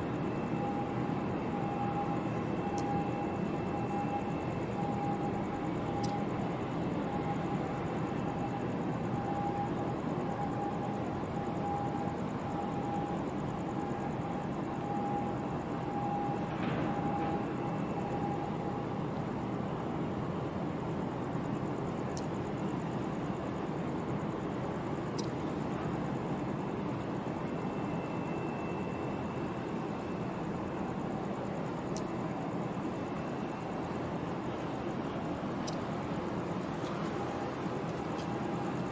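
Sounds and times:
faint high ticks: 2.7 - 3.0, 6.0 - 6.3, 22.1 - 22.3, 25.1 - 25.4, 31.9 - 32.1, 35.6 - 35.9.

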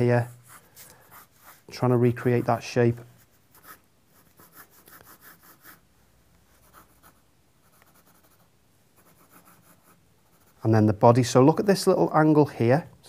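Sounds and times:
pencil strokes on paper: 0.0 - 5.9, 6.5 - 10.7.

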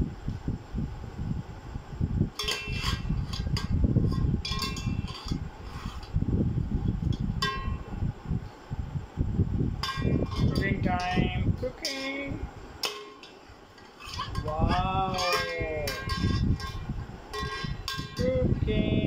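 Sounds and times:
low rumbling noise: 0.0 - 19.0
metal skimmer clinking on pot: 2.4 - 5.4, 7.4 - 7.8, 9.8 - 13.4, 14.0 - 18.4.

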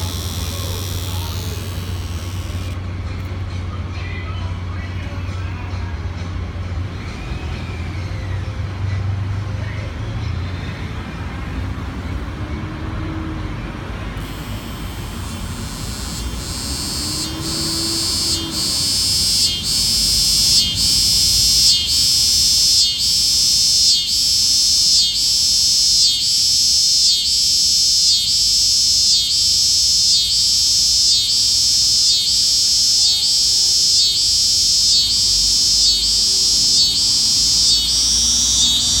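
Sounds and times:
cicada buzzing: 0.0 - 2.8, 14.1 - 39.0.

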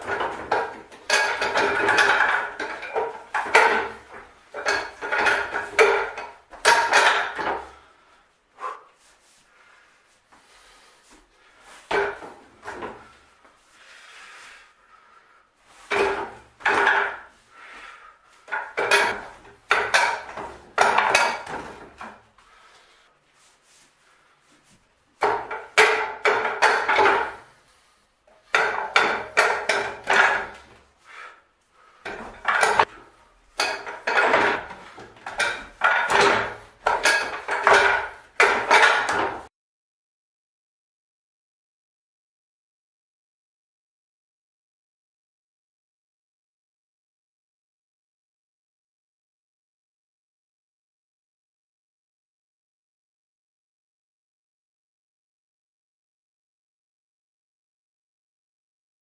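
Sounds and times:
strikes on wooden dummy: 0.0 - 7.8, 11.9 - 13.1, 15.9 - 17.4, 18.5 - 22.2, 25.2 - 27.5, 28.5 - 30.8, 32.0 - 39.5.

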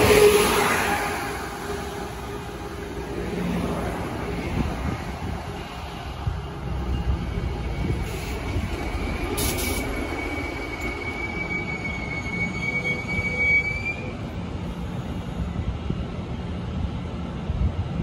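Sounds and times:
train wheels rumbling: 0.0 - 18.0
high-pitched wheel squeal: 6.9 - 14.2.

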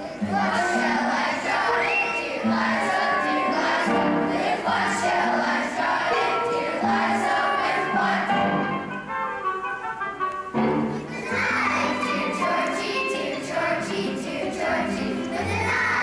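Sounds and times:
children's choir singing: 0.0 - 9.8, 10.5 - 16.0
musical accompaniment: 0.0 - 16.0.

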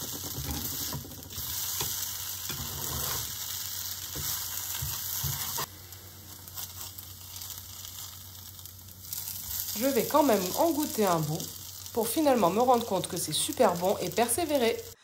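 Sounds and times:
oil sizzling in a frying pan: 0.0 - 15.0
plastic spatula scraping a pan: 2.5 - 3.4.

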